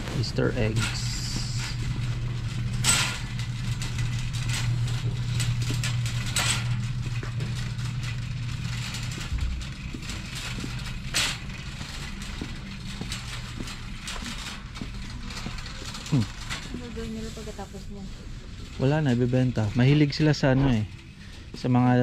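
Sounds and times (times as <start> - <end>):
shopping cart knocks and rattles: 0.0 - 21.0
low machinery hum: 0.0 - 22.0.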